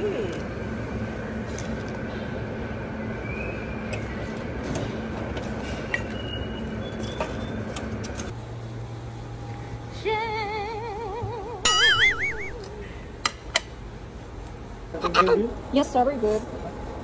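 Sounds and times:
restaurant room hum: 0:00.0 - 0:17.0
warbling tone: 0:11.7 - 0:12.6.

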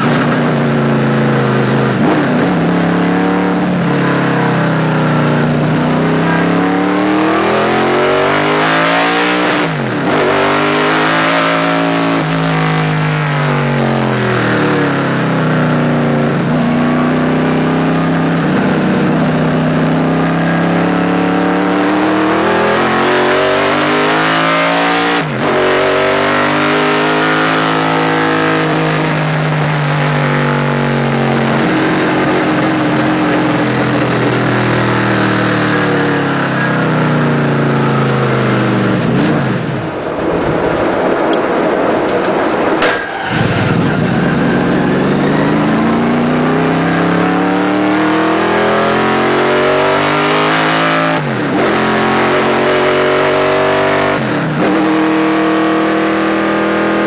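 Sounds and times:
race car engine under load: 0:00.0 - 0:57.0.

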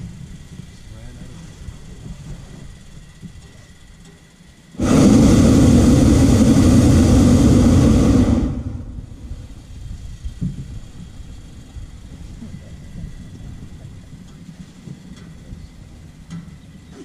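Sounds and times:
propane burner blast: 0:04.8 - 0:13.7.

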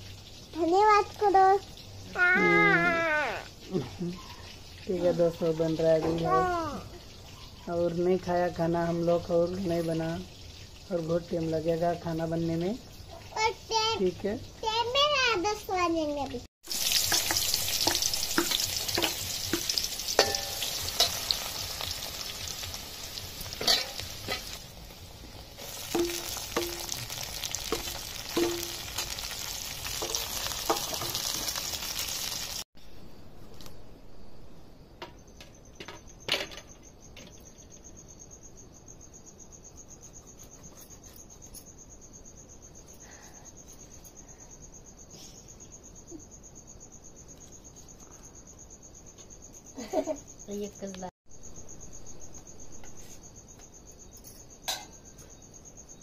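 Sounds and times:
onions sizzling in oil: 0:00.0 - 0:32.7
cricket chirping: 0:00.0 - 0:56.0.

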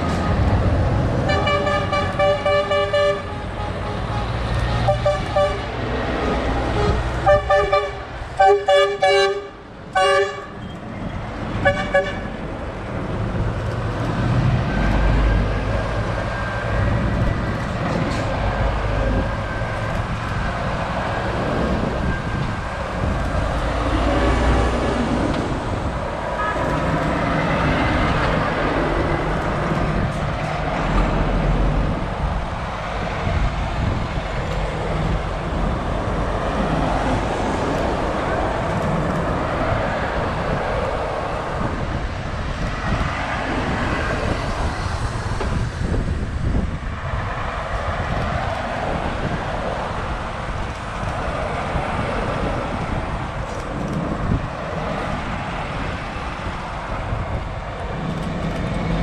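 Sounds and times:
diesel lorries driving past: 0:00.0 - 0:08.7
lorry horns tooting: 0:01.2 - 0:05.8, 0:06.6 - 0:10.6.

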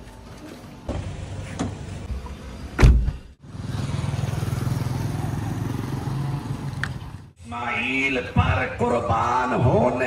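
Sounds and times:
car door shutting: 0:02.8 - 0:03.3.

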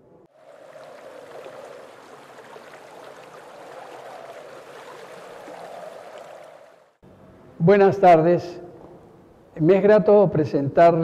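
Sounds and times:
running water: 0:00.3 - 0:07.0.

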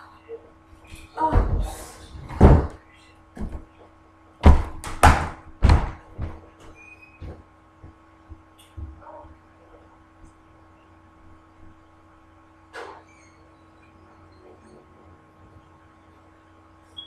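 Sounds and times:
heavy thuds and knocks: 0:01.2 - 0:02.8, 0:03.4 - 0:03.8, 0:04.4 - 0:06.6.

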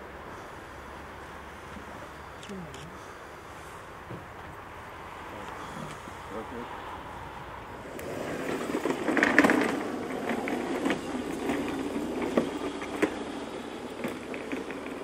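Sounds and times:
trolley case wheels rolling on paving: 0:07.3 - 0:15.0.

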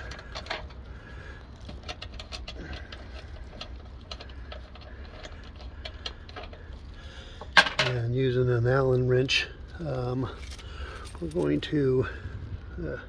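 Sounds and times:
brass caps clicking and scraping: 0:00.0 - 0:08.0
steady low hum: 0:00.0 - 0:13.0.

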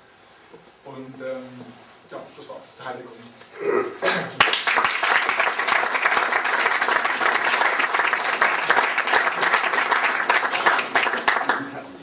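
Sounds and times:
audience applauding: 0:04.1 - 0:12.0.

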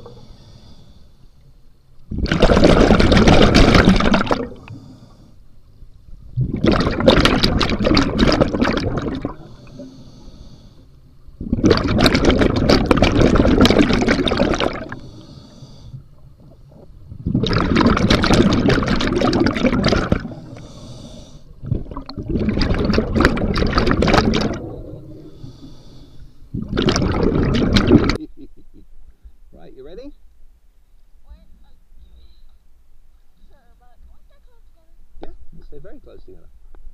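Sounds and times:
regulator inhale hiss: 0:00.0 - 0:01.8, 0:04.4 - 0:05.8, 0:09.3 - 0:11.4, 0:14.8 - 0:16.7, 0:20.2 - 0:21.6, 0:24.8 - 0:26.6
diver exhaling bubbles gurgling: 0:02.1 - 0:04.8, 0:06.3 - 0:09.9, 0:11.4 - 0:15.3, 0:16.4 - 0:28.2.

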